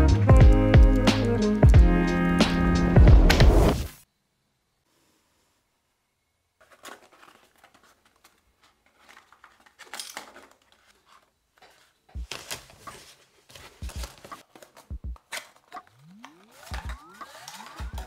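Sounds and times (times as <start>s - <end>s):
packaging rustling and scraping: 6.6s - 18.0s.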